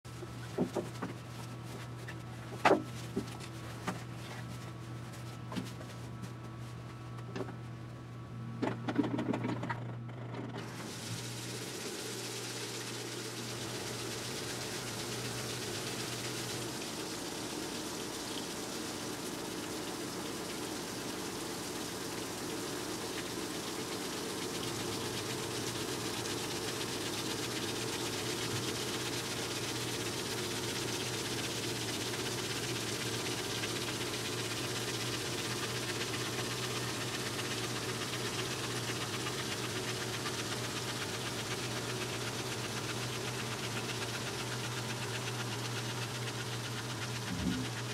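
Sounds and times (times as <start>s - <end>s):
water spraying into drum: 0.1s - 7.6s, 10.6s - 47.9s
low hum: 47.1s - 47.9s.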